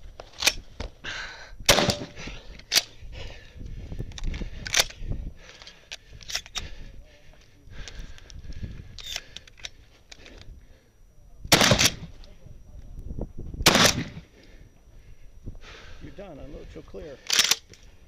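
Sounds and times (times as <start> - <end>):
gun clicks and rattles: 0.2 - 0.8, 2.5 - 3.0, 4.0 - 6.7, 7.8 - 10.5, 17.2 - 18.0
shotgun shots: 1.7 - 2.2, 11.5 - 12.1, 13.6 - 14.3.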